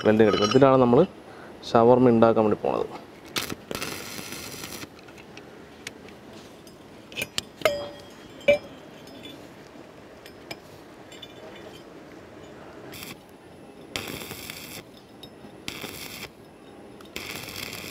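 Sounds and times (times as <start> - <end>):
metallic clinks with ringing: 0.0 - 0.8, 6.6 - 9.6, 10.2 - 12.7, 14.8 - 15.6, 16.3 - 17.3
welding arc crackle: 3.2 - 5.0, 12.9 - 13.2, 14.0 - 14.9, 15.7 - 16.4, 17.1 - 17.9.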